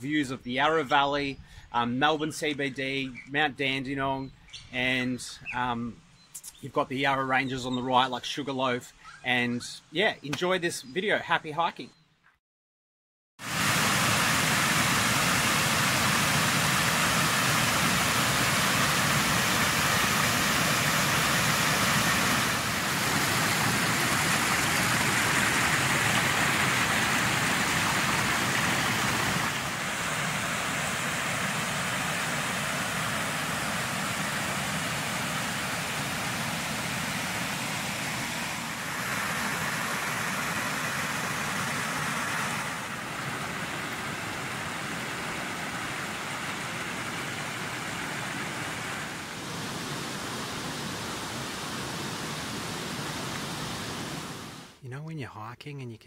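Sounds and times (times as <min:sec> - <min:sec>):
creek water rushing over rocks: 0:13.4 - 0:54.8.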